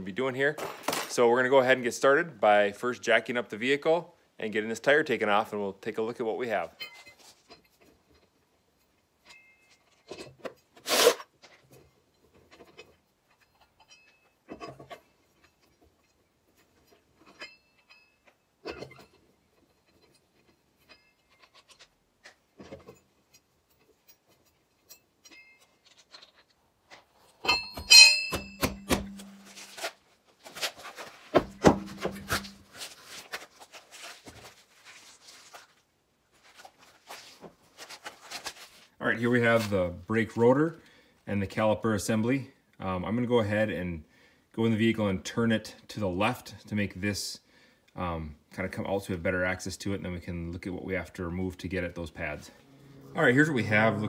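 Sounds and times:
metal clanks with ringing: 13.7s - 14.3s, 27.4s - 29.6s.

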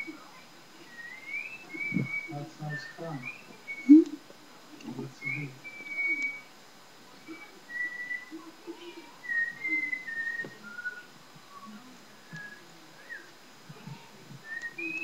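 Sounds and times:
woman whistling a tune: 0.9s - 4.1s, 5.3s - 6.5s, 7.3s - 8.4s, 9.2s - 11.7s, 12.3s - 13.3s, 14.4s - 15.0s.

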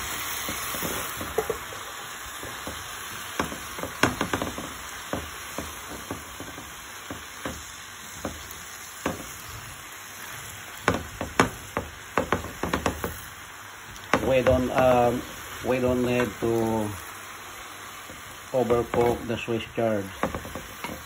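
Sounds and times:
greens sizzling in a frying pan: 0.0s - 21.0s
spatula scraping a pan: 18.0s - 21.0s.

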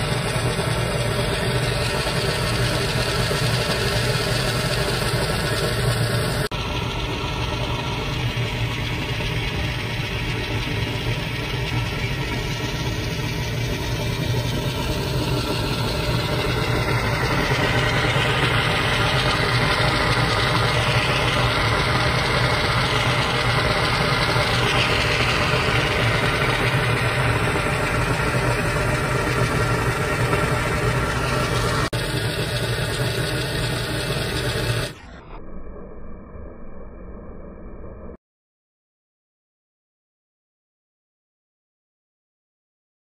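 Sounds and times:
low rumble: 0.0s - 38.2s
geyser steam rushing: 7.2s - 35.0s.

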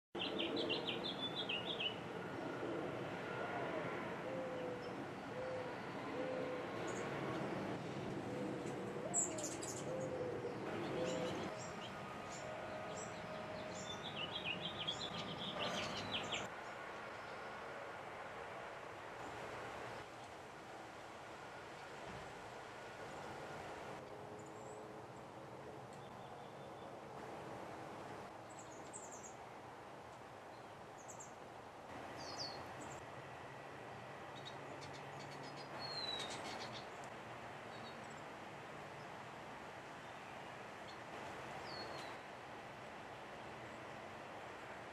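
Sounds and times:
small songbirds chirping: 0.2s - 2.0s, 8.5s - 17.5s, 28.4s - 29.4s, 30.5s - 31.4s, 32.0s - 33.0s, 34.3s - 38.3s, 41.6s - 42.2s
low background noise: 0.2s - 44.9s
outdoor background hiss: 0.2s - 44.9s.

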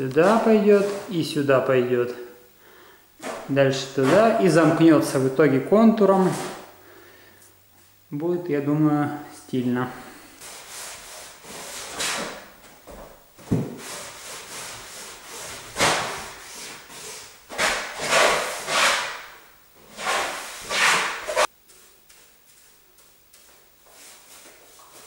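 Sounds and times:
rag rubbing wooden boards: 3.2s - 5.1s, 10.4s - 12.4s, 13.5s - 21.5s.

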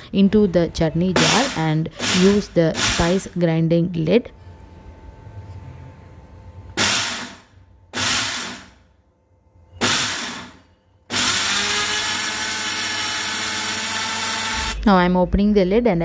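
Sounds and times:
mixer grinder motor grinding seeds: 11.1s - 14.8s.

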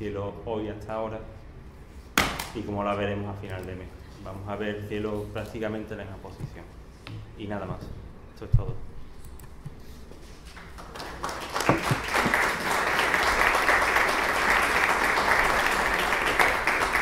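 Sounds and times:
audience applauding: 10.6s - 17.0s.

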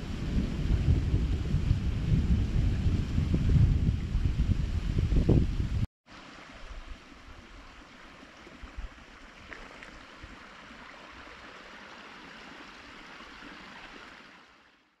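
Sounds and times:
wind gusts buffeting microphone: 0.0s - 5.9s
wind rushing: 0.0s - 5.9s.

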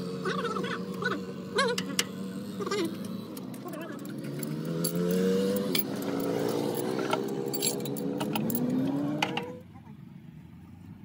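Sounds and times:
car engine running: 0.0s - 11.0s
metal parts clinking: 3.5s - 8.8s.

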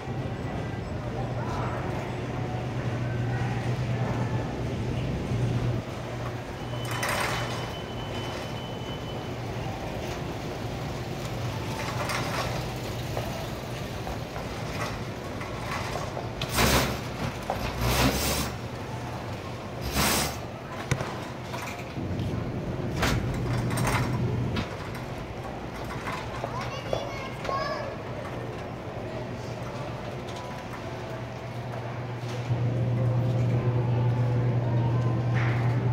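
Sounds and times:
shopping cart rattling: 5.2s - 32.6s.

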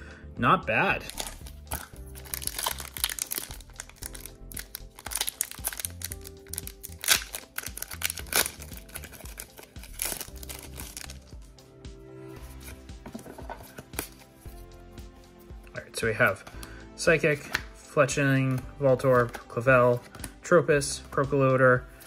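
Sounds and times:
background music with low held notes: 0.0s - 22.0s
foil wrapper crinkling and tearing: 1.0s - 11.3s.

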